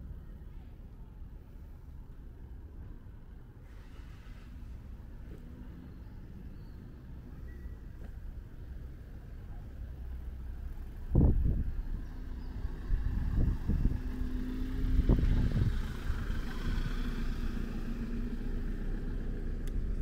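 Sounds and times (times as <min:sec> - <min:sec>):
car engine humming past: 0:09.9 - 0:20.0.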